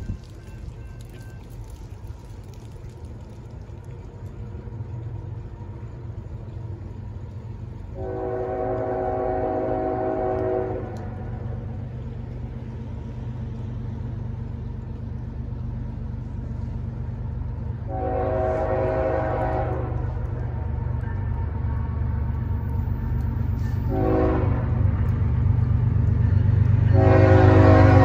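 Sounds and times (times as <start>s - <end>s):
steady low rumble: 0.0s - 28.0s
train horn blast: 7.9s - 11.4s, 17.9s - 20.4s, 23.6s - 24.9s, 26.8s - 28.0s.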